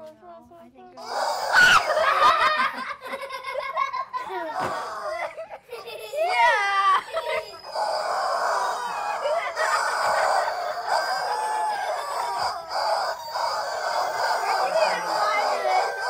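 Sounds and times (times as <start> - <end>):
rubber chicken toys squawking: 1.0 - 2.4, 6.3 - 16.0.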